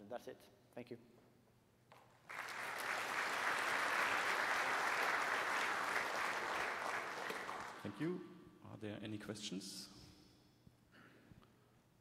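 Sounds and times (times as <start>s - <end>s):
audience applauding: 2.3s - 8.0s.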